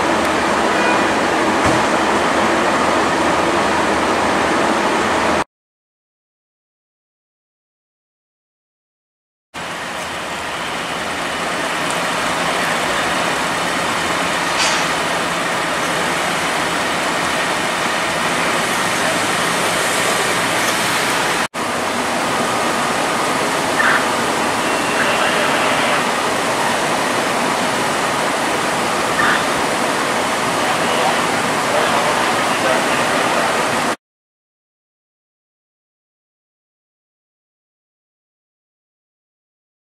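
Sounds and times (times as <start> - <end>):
steady rushing noise: 9.6 - 34.0.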